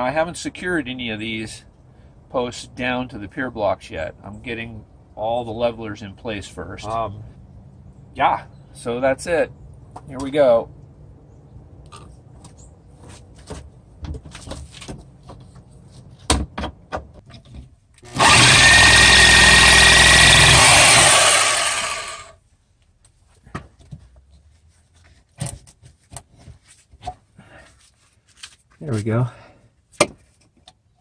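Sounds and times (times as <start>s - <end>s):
knocks and scrapes of handling: 11.9s - 17.8s, 23.1s - 29.1s
cordless drill drilling into wood: 18.0s - 22.3s.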